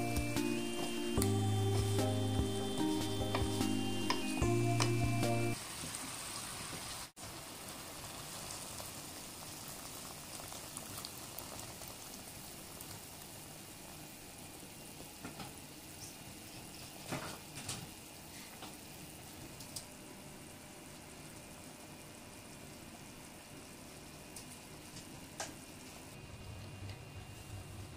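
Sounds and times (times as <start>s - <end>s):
water bubbling in a pot: 5.6s - 15.2s.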